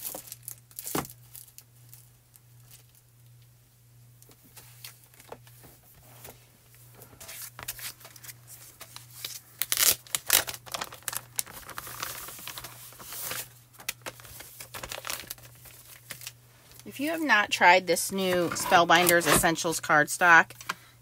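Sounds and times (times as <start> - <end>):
plastic bag crinkling: 0.0 - 3.0, 7.4 - 19.4.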